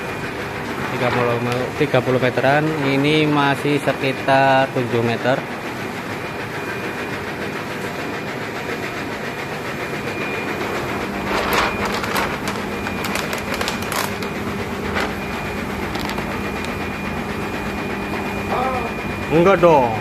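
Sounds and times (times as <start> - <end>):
machinery hum and whir: 0.0 - 20.0
plastic film crackling: 11.2 - 16.9.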